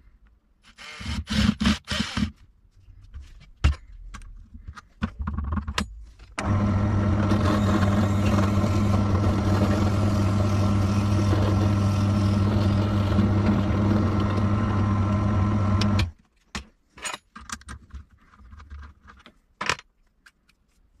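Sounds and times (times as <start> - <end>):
drill press drilling wood: 6.4 - 16.1.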